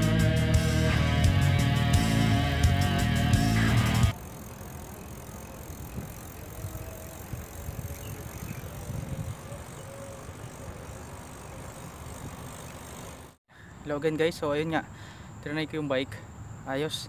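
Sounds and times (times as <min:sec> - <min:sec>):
bike tyres rolling on concrete: 0:02.1 - 0:13.4
wind buffeting microphone: 0:05.7 - 0:12.5.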